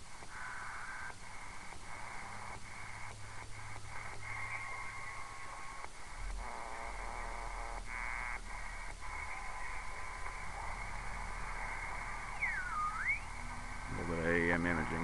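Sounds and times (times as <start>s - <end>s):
radio static hiss: 0.0s - 15.0s
faint steady whistle: 9.2s - 13.5s.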